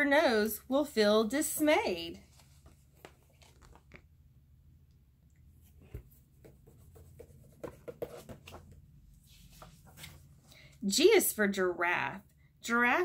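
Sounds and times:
paper rustling: 2.2s - 4.1s, 5.9s - 10.4s.

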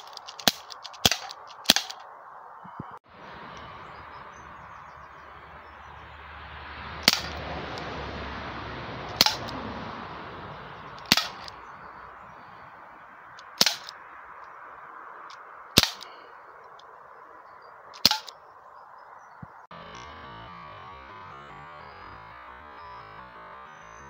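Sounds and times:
air pistol shots: 0.0s - 2.0s, 7.0s - 7.4s, 9.2s - 9.5s, 11.0s - 11.5s, 13.4s - 14.0s, 15.8s - 16.2s, 18.0s - 18.3s
steady background hiss: 0.0s - 6.0s, 11.4s - 19.7s.

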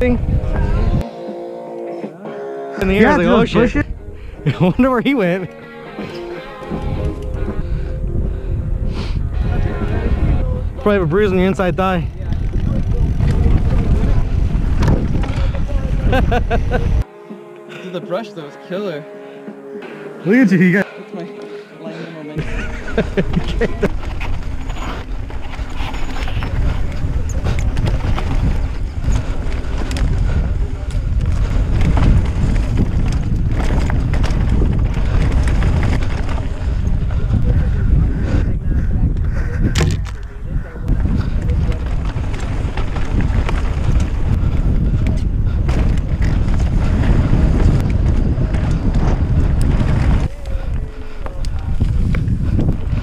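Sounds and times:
wind buffeting microphone: 0.0s - 1.1s, 6.0s - 17.1s, 22.4s - 53.0s
sharp clicks and rattles: 11.2s - 15.7s
bike clicks and rattles: 11.2s - 16.8s, 22.4s - 38.0s, 39.1s - 53.0s
tyres rolling on dirt: 22.4s - 37.6s, 39.7s - 53.0s.

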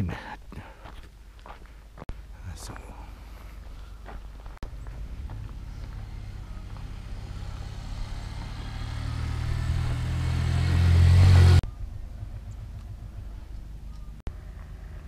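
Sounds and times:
vehicle engine running: 3.4s - 15.0s.

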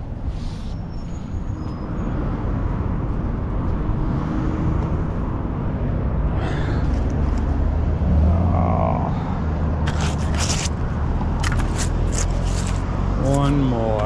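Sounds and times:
road traffic rumble: 0.0s - 14.0s.

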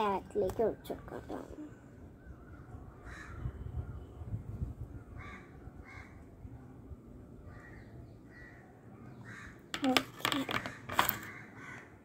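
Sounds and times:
crows cawing: 3.1s - 3.4s, 9.2s - 9.7s, 10.6s - 12.0s.

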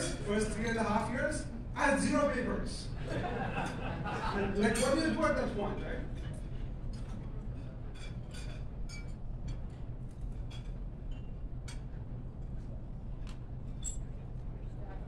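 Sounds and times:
low hum of a large hall: 0.0s - 15.0s.

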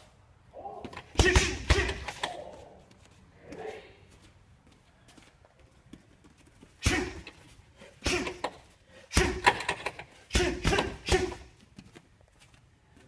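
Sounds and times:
punches thudding on punching bag: 1.1s - 2.1s, 6.8s - 7.2s, 9.1s - 9.5s, 10.3s - 11.4s.

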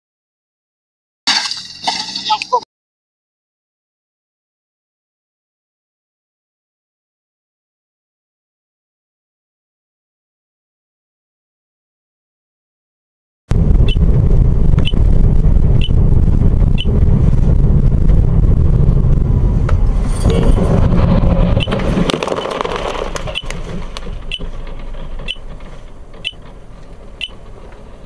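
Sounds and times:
road and engine rumble: 13.5s - 28.0s
sharp clicks: 21.6s - 26.6s.

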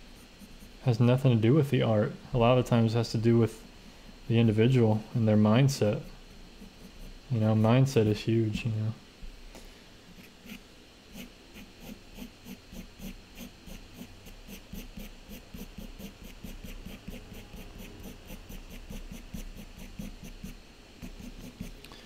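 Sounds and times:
pencil scratching on paper: 6.6s - 7.2s, 10.2s - 21.8s.

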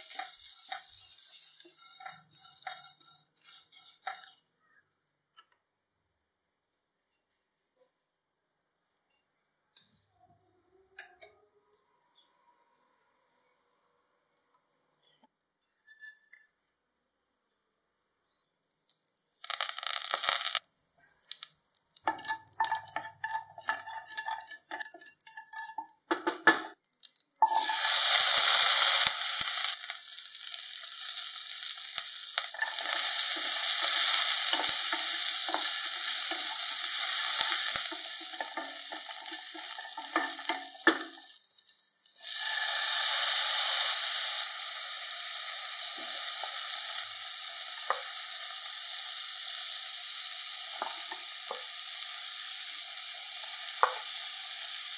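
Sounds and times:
hot oil crackling: 0.0s - 4.5s, 18.9s - 54.9s
loud sizzle of frying: 0.0s - 4.5s, 19.4s - 20.6s, 21.2s - 54.9s
spatula scraping pan: 0.0s - 4.5s, 15.8s - 16.4s, 22.0s - 26.6s, 27.4s - 29.8s, 31.0s - 41.3s.

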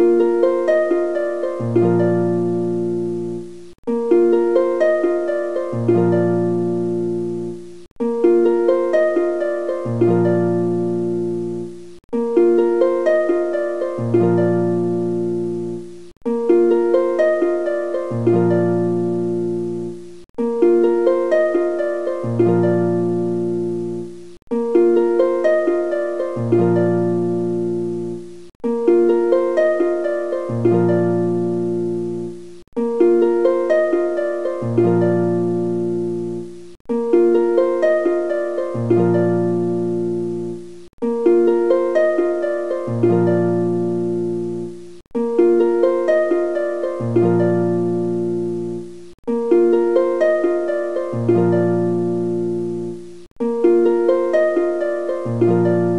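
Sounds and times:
plucked string melody: 0.0s - 55.9s.

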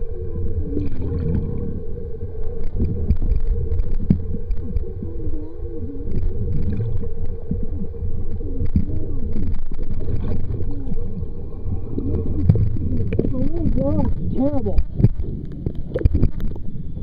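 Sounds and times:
low warbling tones: 0.0s - 17.0s
underwater rumble and gurgling: 0.0s - 17.0s.

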